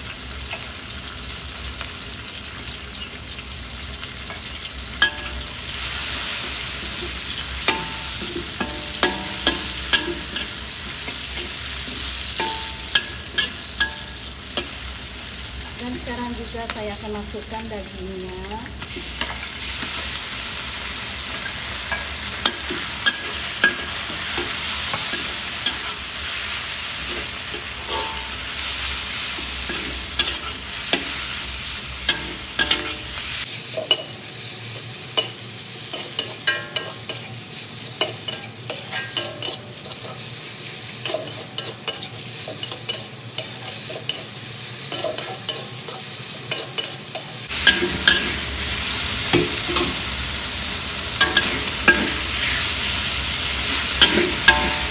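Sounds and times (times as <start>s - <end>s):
meat sizzling in hot oil: 0.0s - 54.9s
metal spatula scraping and tapping wok: 6.2s - 14.8s, 20.8s - 31.3s, 32.0s - 33.2s, 35.2s - 37.3s, 38.0s - 40.2s, 41.0s - 44.3s, 44.9s - 50.1s, 51.1s - 54.9s.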